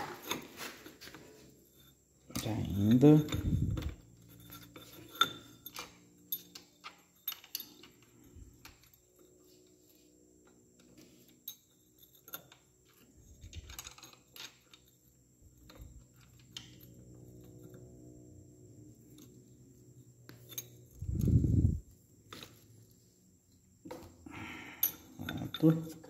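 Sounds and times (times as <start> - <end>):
wrench clinking on metal: 1.8 - 9.0, 20.4 - 21.3, 24.7 - 26.0.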